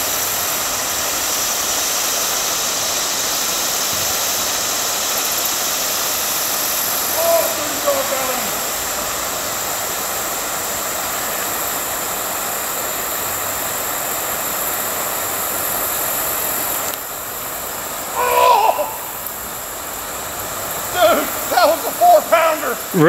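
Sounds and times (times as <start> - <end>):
outdoor hiss: 0.0 - 23.0
thin high steady tones: 6.7 - 9.6, 20.6 - 23.0
person calling: 7.0 - 9.0, 18.1 - 19.5, 20.9 - 23.0.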